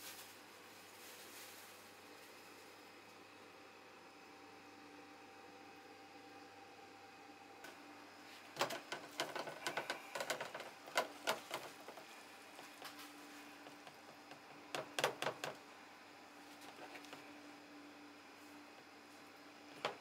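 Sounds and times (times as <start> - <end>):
faint steady hum: 0.0 - 20.0
plastic tubs clattering on steel: 8.5 - 12.1.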